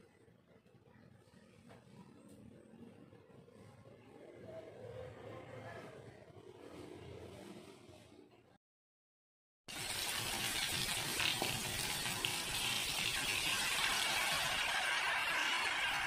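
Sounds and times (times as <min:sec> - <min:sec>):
hot oil sizzling: 0:09.7 - 0:16.0.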